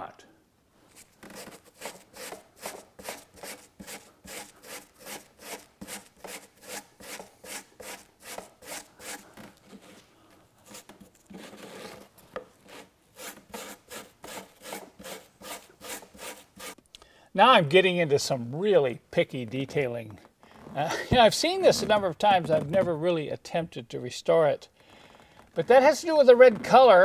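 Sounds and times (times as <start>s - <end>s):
hand brush scrubbing carpet: 0.9s - 11.9s.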